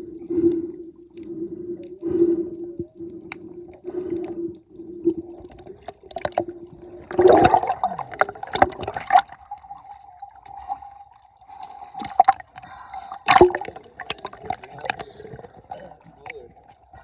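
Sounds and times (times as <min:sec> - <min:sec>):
faint steady hum: 0:00.0 - 0:17.0
water sloshing and splashing: 0:00.0 - 0:17.0
bubbly clicks: 0:05.2 - 0:09.4, 0:13.2 - 0:16.8.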